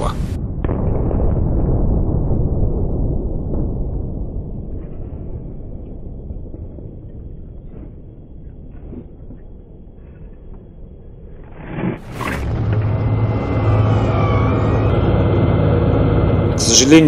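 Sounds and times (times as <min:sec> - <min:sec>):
low rumble: 0:00.0 - 0:17.0
tank gun blast: 0:00.4 - 0:07.5
tank engine running: 0:12.0 - 0:17.0.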